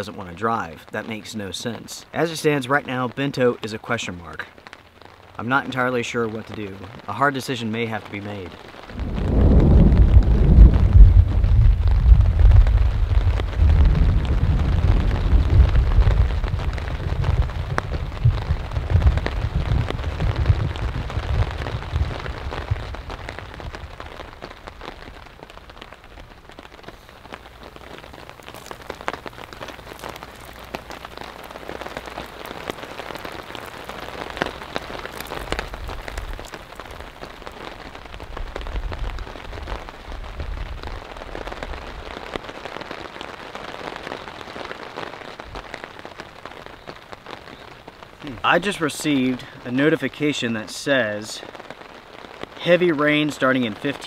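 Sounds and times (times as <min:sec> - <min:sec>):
rain on a tarp: 0:00.0 - 0:54.0
low rumble of thunder: 0:08.9 - 0:25.2
drips ticking: 0:26.8 - 0:37.8.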